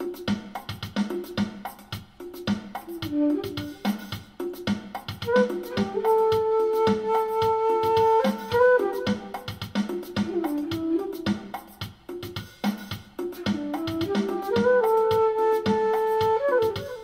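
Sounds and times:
steady drum beat: 0.0s - 17.0s
flute with harmonizer effect: 2.8s - 11.9s, 13.2s - 17.0s.

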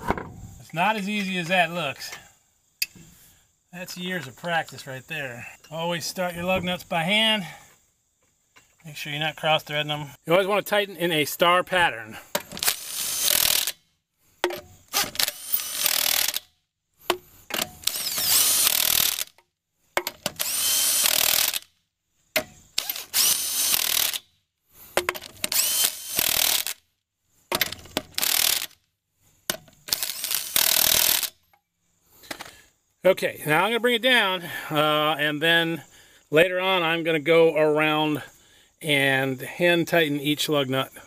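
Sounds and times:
impact wrench running lug nuts: 12.4s - 13.8s, 14.4s - 16.4s, 17.1s - 19.4s, 20.0s - 21.7s, 22.8s - 24.2s, 25.0s - 26.8s, 27.5s - 28.8s, 29.8s - 31.4s.

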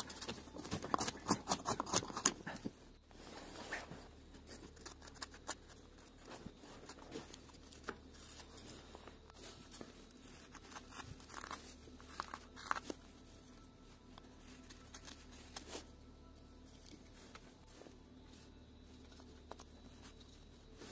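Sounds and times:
knife scraping wood: 0.1s - 2.7s.

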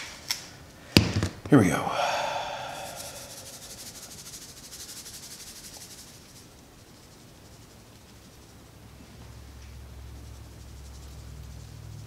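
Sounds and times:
spice shaker rattling: 2.6s - 12.0s.

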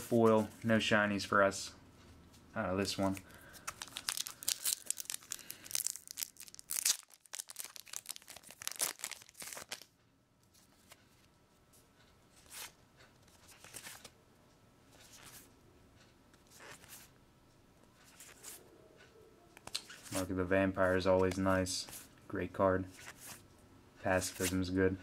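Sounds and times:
plastic wrapper tearing and crinkling: 3.6s - 9.9s.

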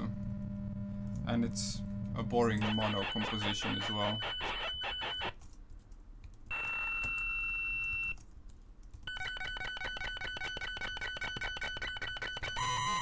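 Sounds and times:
high ringing synthesizer tone: 2.6s - 5.3s.

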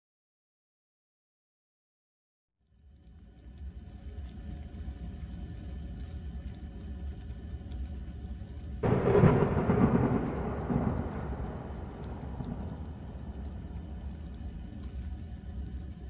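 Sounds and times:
steady low background noise: 7.8s - 16.0s
thunder cracking and rolling: 8.8s - 14.9s.

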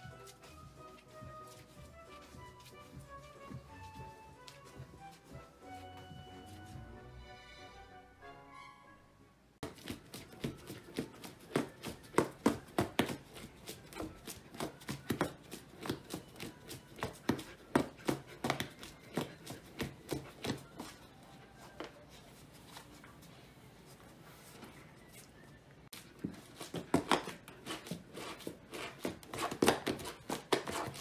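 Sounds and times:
puppy scratching cardboard box: 9.6s - 21.1s, 25.9s - 31.0s.

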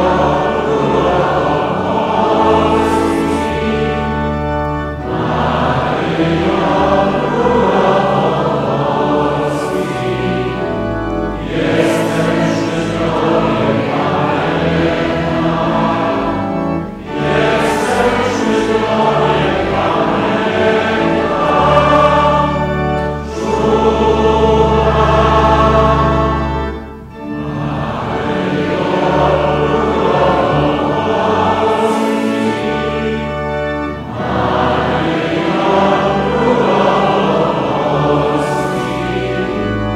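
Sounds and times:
congregation singing a hymn: 0.0s - 39.9s
steady low tones: 0.0s - 39.9s.

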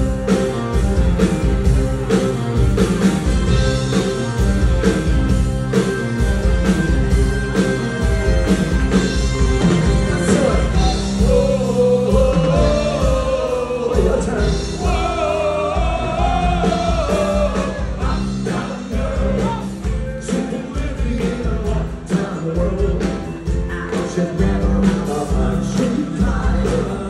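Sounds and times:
live rock band playing: 0.0s - 27.0s
steady drum beat: 0.0s - 27.0s
singer holding long notes: 10.0s - 19.8s.

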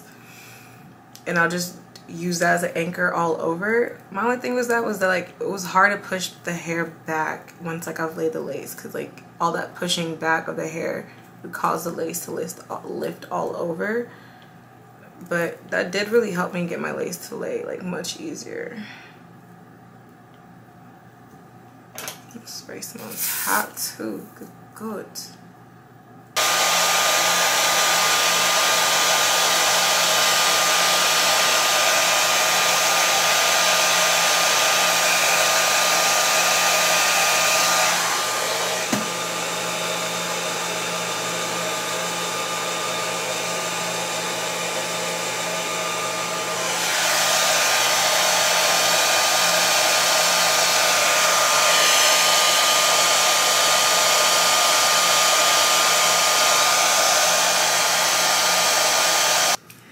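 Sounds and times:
hair dryer running with whine: 26.4s - 59.6s.

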